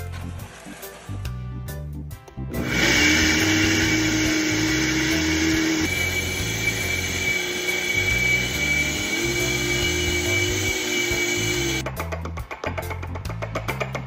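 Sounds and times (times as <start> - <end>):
blender motor running: 2.5 - 11.8.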